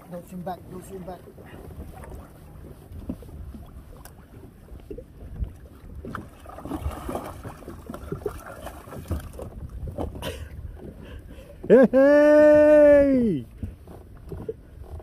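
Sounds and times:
water lapping against kayak hull: 0:00.0 - 0:15.0
wind rumbling on microphone: 0:00.0 - 0:15.0.

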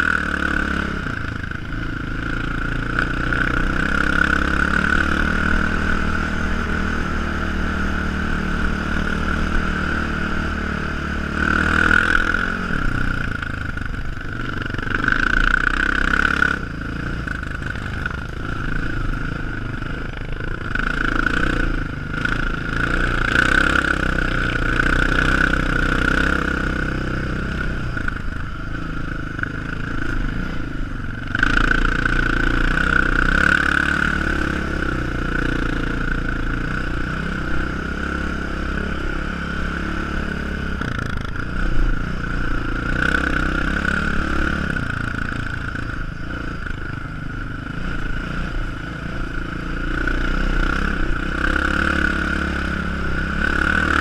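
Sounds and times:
atv engine revving: 0:00.0 - 0:54.0
steady high whine: 0:00.0 - 0:54.0.

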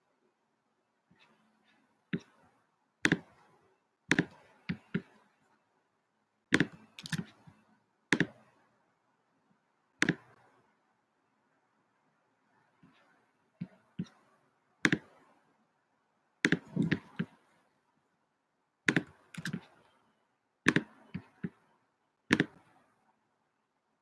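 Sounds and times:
computer mouse clicking: 0:06.6 - 0:07.4, 0:18.9 - 0:19.8.

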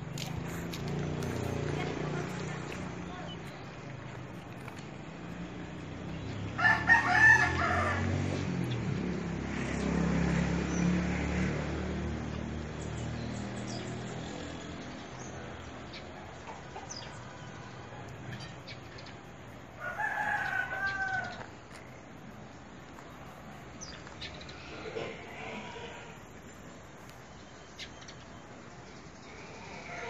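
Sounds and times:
rooster crowing: 0:06.6 - 0:08.2, 0:19.8 - 0:21.5.

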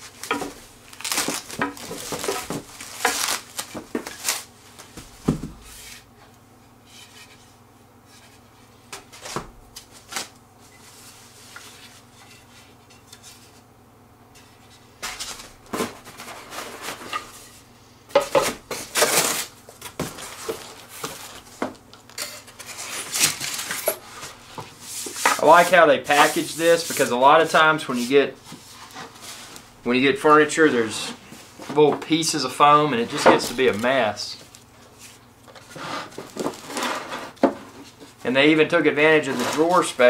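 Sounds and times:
cardboard scraping and rustling: 0:00.1 - 0:06.0, 0:15.0 - 0:17.5, 0:18.4 - 0:21.7, 0:22.6 - 0:29.6, 0:35.0 - 0:38.2, 0:39.0 - 0:40.0.

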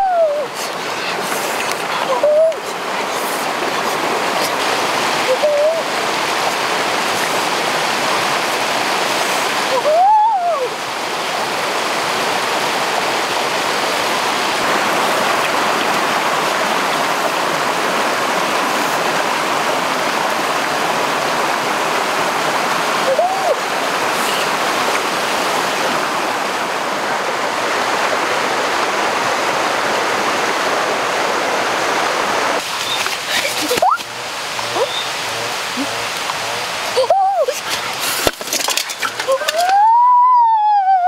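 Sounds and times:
waterfall and stream over rocks: 0:00.0 - 0:41.0
high rising and falling call: 0:32.8 - 0:35.9.

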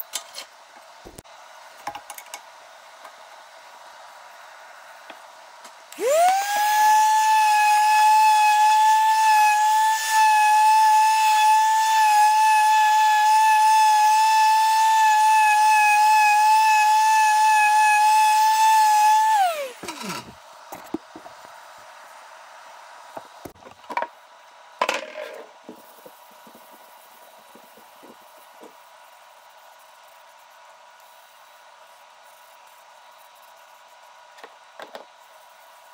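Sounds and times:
orbital sander whining: 0:06.0 - 0:20.3.

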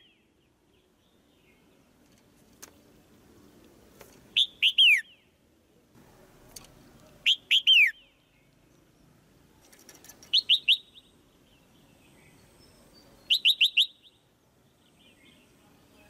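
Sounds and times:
bulbul chirping calls: 0:04.3 - 0:05.4, 0:07.1 - 0:08.5, 0:10.2 - 0:14.3.

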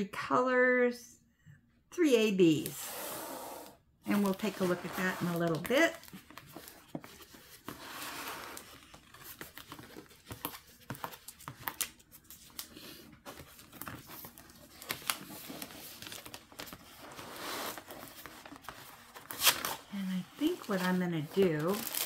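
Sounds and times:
canvas and plastic film crinkling: 0:08.5 - 0:22.0.

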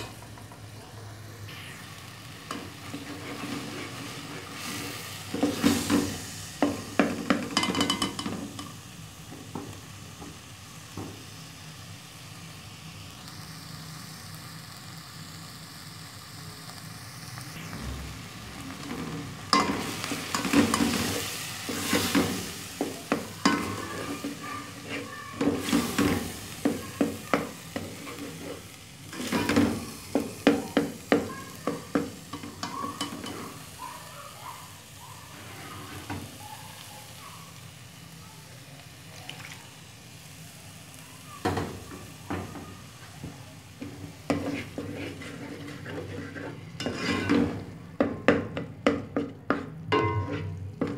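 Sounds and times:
onions and tomatoes frying: 0:00.0 - 0:50.9
spoon scraping metal pot: 0:44.3 - 0:47.7, 0:49.2 - 0:50.9.

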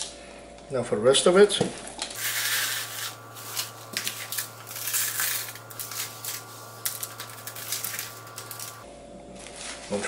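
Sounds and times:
gritty crunching rustle: 0:02.2 - 0:08.8
salt crystals crackling on meat: 0:02.2 - 0:08.8.

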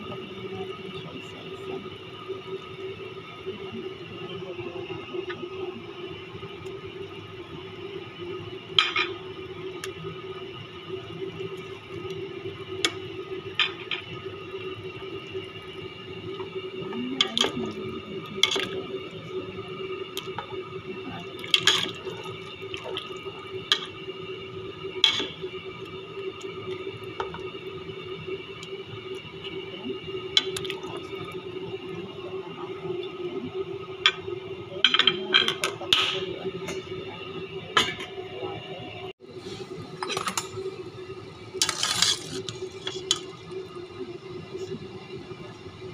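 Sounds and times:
steady hum: 0:00.0 - 0:45.9.

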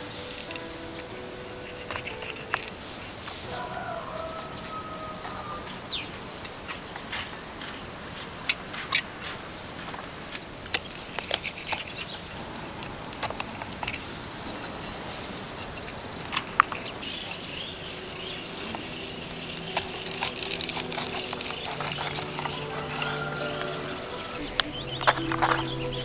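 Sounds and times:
soft music: 0:00.0 - 0:08.4, 0:15.8 - 0:26.0
high chirping: 0:15.8 - 0:26.0.

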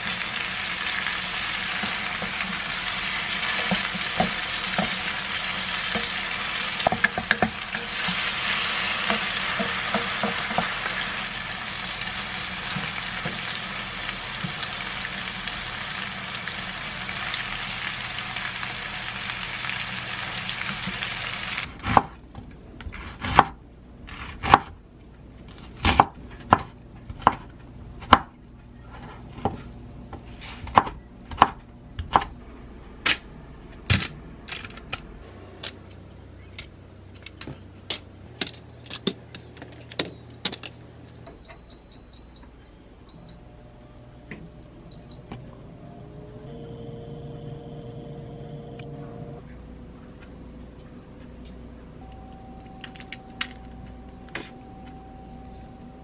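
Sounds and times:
food sizzling in frying pan: 0:00.0 - 0:21.7.

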